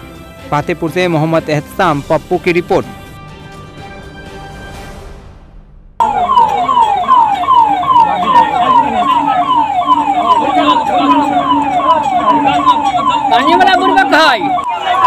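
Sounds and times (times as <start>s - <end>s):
emergency vehicle siren: 6.0s - 15.0s.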